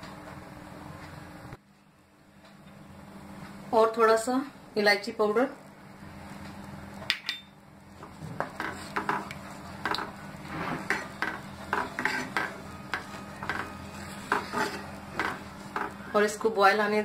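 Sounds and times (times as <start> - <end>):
spatula scraping a pan: 8.4 - 16.0.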